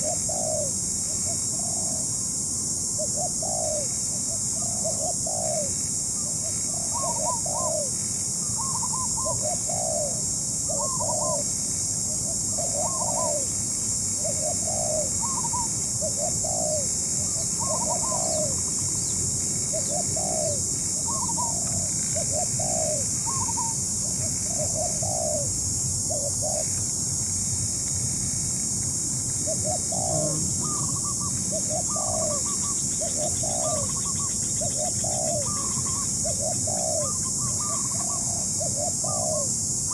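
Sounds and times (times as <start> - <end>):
doves cooing: 0.0 - 2.1, 3.0 - 5.7, 6.4 - 11.5, 12.1 - 13.6, 14.2 - 26.8, 29.3 - 39.9
steady high hiss: 0.0 - 39.9.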